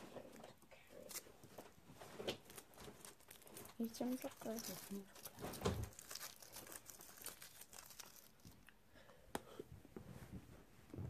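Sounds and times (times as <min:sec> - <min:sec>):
foil wrapper crinkling and tearing: 0:02.2 - 0:08.7.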